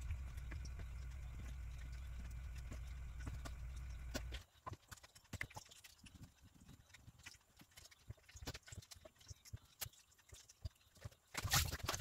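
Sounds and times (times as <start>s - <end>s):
low hum: 0.0s - 4.4s.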